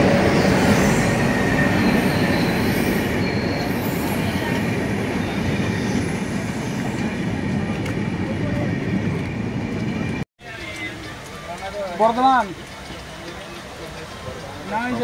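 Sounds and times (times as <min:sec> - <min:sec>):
high wheel squeals: 0:00.0 - 0:07.1
train wheels rumbling on rails: 0:00.0 - 0:15.0.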